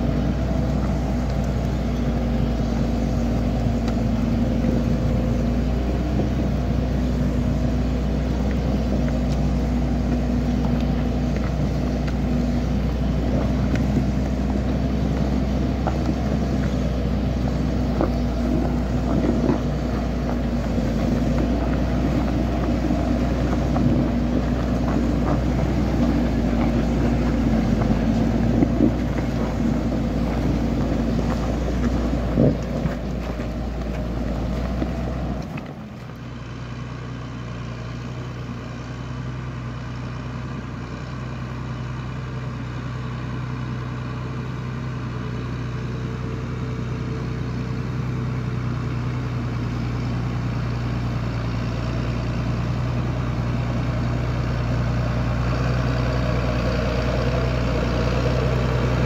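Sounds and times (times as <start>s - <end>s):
trailer knocking and rattling: 0.0s - 36.2s
tractor engine running: 0.0s - 59.0s.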